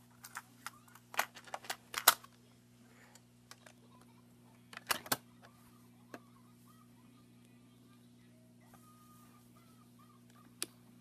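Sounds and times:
plastic toy clicks and knocks: 0:04.7 - 0:05.2.

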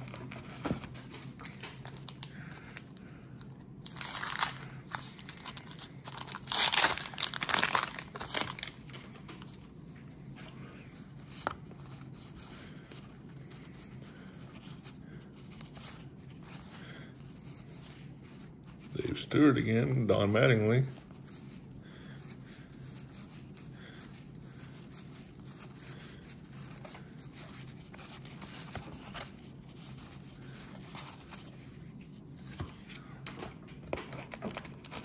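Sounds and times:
paper wrappers tearing and crinkling: 0:00.0 - 0:03.0, 0:03.8 - 0:09.6, 0:34.0 - 0:35.0.

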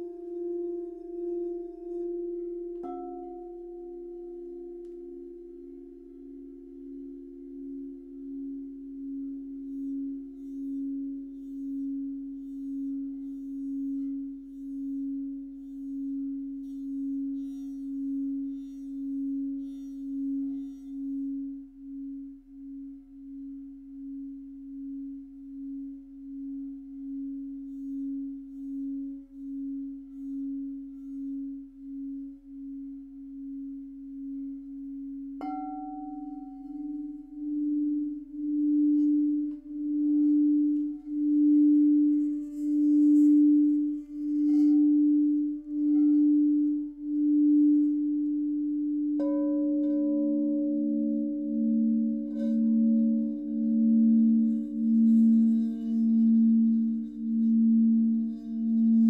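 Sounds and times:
higher singing bowl tone: 0:00.0 - 0:59.0
singing bowl low hum: 0:00.0 - 0:59.0
singing bowl tapped: 0:02.7 - 0:03.6, 0:35.4 - 0:37.2.

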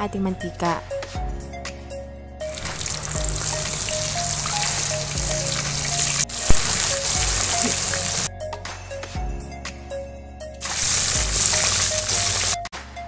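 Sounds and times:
oil sizzling in deep frying: 0:02.5 - 0:08.3, 0:10.6 - 0:12.7.

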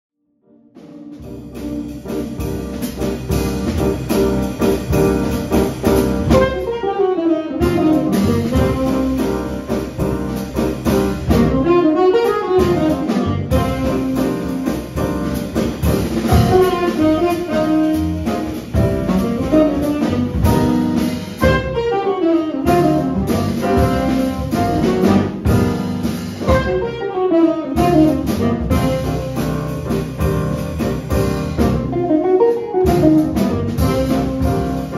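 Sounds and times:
piano: 0:00.2 - 0:34.9
drum kit: 0:00.8 - 0:34.9
upright bass: 0:01.1 - 0:06.9, 0:07.6 - 0:34.9
saxophone melody: 0:05.8 - 0:10.4, 0:11.2 - 0:15.2, 0:16.3 - 0:30.0, 0:31.6 - 0:34.9.

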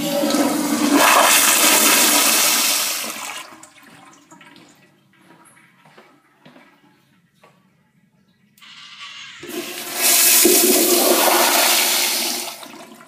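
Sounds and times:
toilet flushing water rush: 0:00.0 - 0:04.4, 0:08.6 - 0:13.0.

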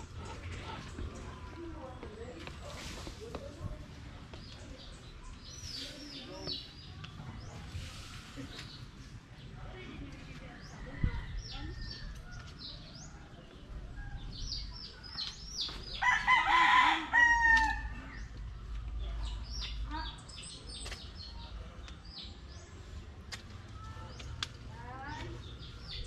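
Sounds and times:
small birds chirping: 0:00.0 - 0:16.6, 0:17.6 - 0:26.0
rooster crowing: 0:16.0 - 0:17.9.

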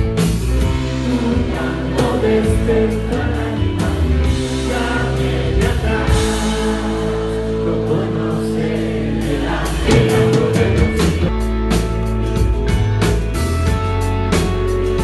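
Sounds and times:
bass guitar: 0:00.0 - 0:15.0
drum kit with cymbals: 0:00.0 - 0:15.0
electric guitars: 0:00.0 - 0:15.0
man singing: 0:00.7 - 0:11.5.

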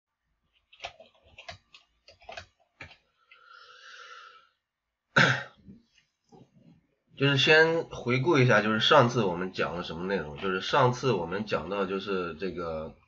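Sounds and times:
keyboard keys clicking: 0:00.6 - 0:03.0.

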